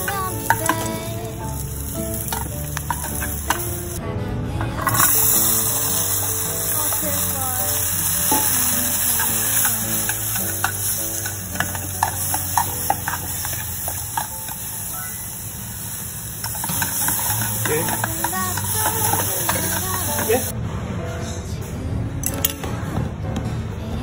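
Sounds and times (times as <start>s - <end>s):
slow background music: 0.0s - 24.0s
chopsticks clicking on metal tin: 2.3s - 3.8s, 8.3s - 14.5s, 16.4s - 20.5s
steady hiss: 4.9s - 20.5s.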